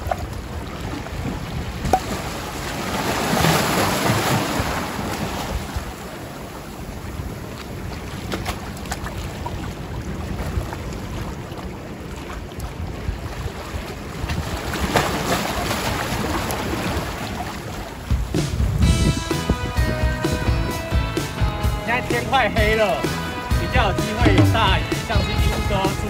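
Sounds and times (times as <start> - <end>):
waves washing against concrete: 0.0 - 19.6
wind buffeting microphone: 0.0 - 26.0.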